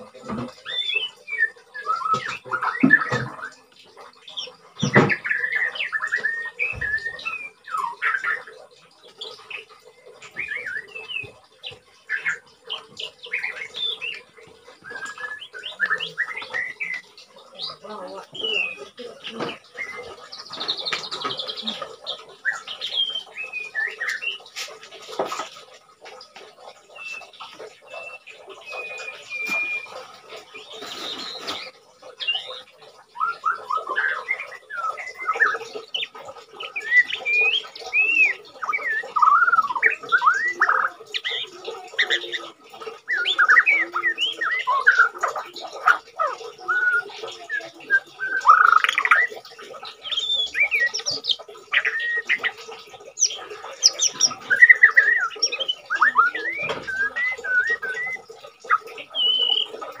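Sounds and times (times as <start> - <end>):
bird singing whistled phrases: 0.4 - 3.7, 4.4 - 8.5, 9.2 - 11.4, 12.1 - 24.5, 26.9 - 60.0.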